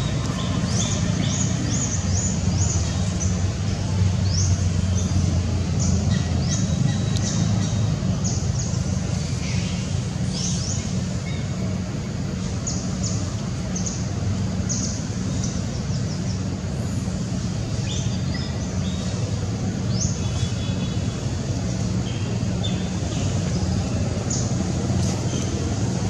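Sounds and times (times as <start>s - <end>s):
low engine-like hum: 0.0s - 26.0s.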